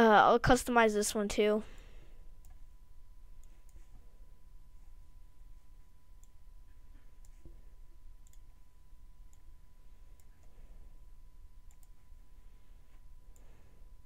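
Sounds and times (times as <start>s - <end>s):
low steady background hum: 0.0s - 14.0s
faint computer mouse clicks: 7.0s - 7.5s, 8.2s - 8.4s, 11.7s - 12.0s.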